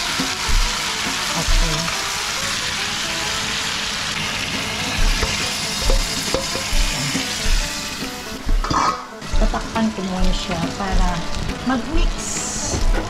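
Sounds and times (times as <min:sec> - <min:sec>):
meat sizzling in a wok: 0:00.0 - 0:13.0.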